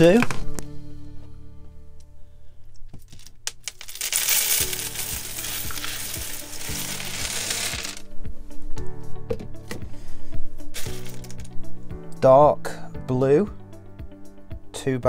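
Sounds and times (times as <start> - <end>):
plastic bricks clattering onto table: 3.0 - 8.0, 10.8 - 11.5.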